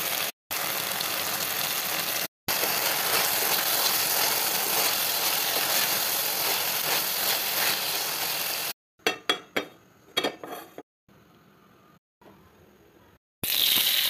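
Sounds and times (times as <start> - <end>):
vegetables sizzling in a pan: 0.0 - 8.8, 13.4 - 14.0
spatula scraping a pan: 2.6 - 8.2
cookware knocks and clinks: 9.0 - 10.8.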